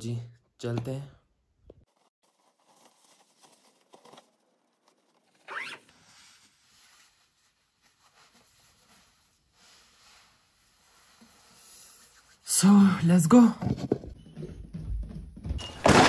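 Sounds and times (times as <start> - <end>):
jacket rustling: 1.8 - 11.2
zipper drawn up: 5.3 - 6.0.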